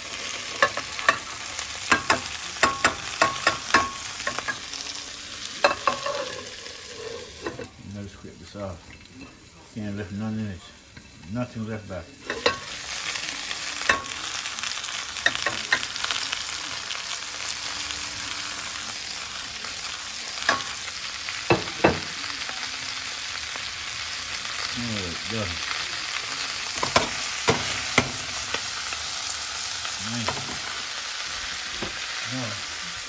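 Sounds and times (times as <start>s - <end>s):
chicken sizzling in a pot: 0.0s - 33.0s.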